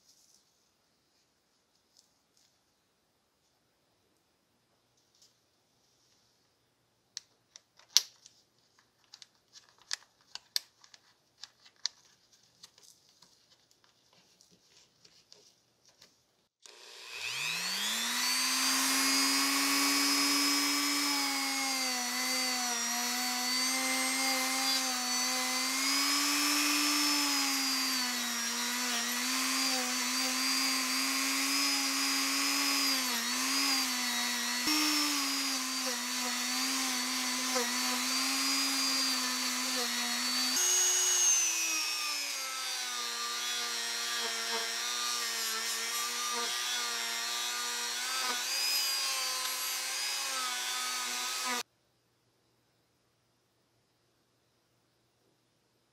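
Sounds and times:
rotary tool motor whine: 16.6s - 51.6s.

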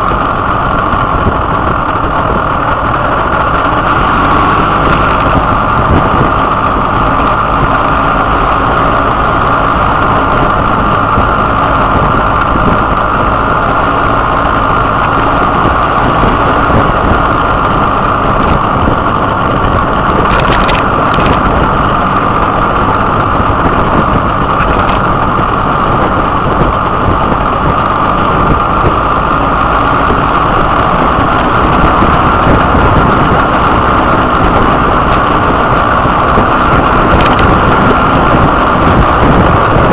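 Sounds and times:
motorcycle engine running: 0.0s - 39.9s
wind rush on microphone: 0.0s - 39.9s.

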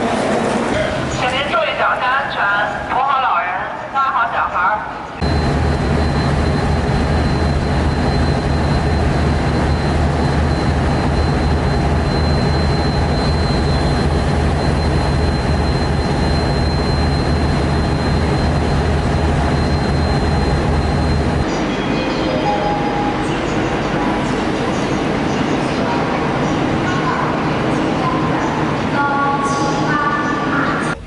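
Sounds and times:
locomotive engine low hum: 5.2s - 21.7s
high whine: 5.2s - 31.0s.

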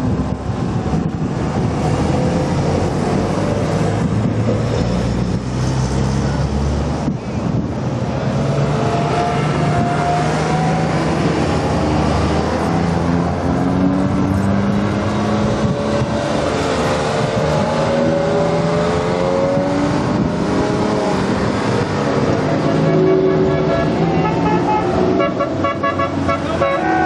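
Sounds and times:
cars driving past: 0.0s - 27.0s
engines accelerating: 0.0s - 27.0s.

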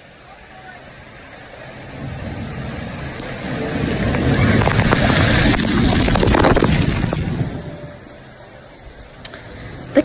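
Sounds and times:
waterfall rushing and splashing: 0.0s - 10.0s.

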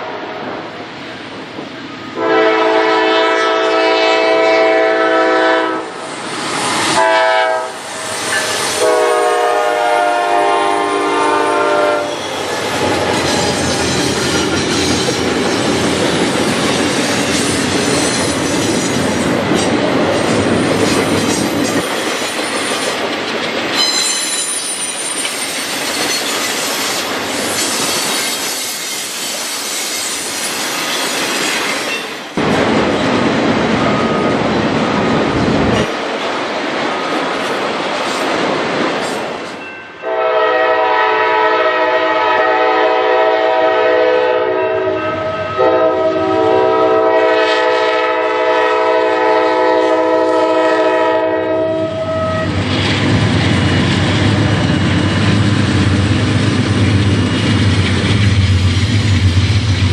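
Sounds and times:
locomotive horn blasts: 2.2s - 6.0s, 7.0s - 8.1s, 8.8s - 12.2s, 40.0s - 52.6s
high wheel squeal: 7.9s - 8.9s, 12.0s - 15.0s, 23.8s - 32.2s
train wheels clacking over rail joints: 8.0s - 9.2s, 12.3s - 34.2s, 52.6s - 59.9s.

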